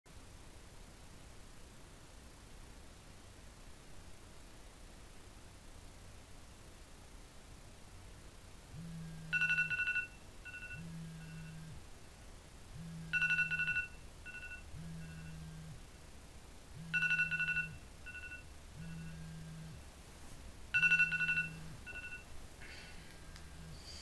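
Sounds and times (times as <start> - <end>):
phone vibrating on mattress: 8.7 - 11.9, 12.7 - 15.9, 16.7 - 20.0, 20.7 - 24.0
phone alarm two-note tone: 8.8 - 11.8, 12.8 - 15.8, 16.8 - 19.8, 20.8 - 22.3.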